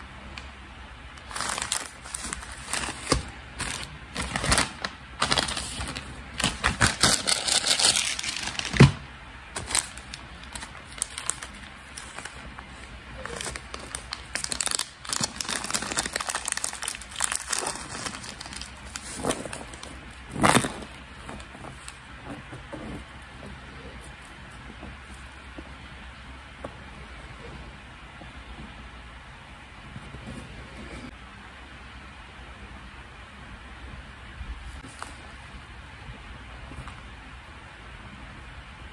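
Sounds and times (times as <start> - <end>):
plastic packaging crinkling: 1.2 - 25.5.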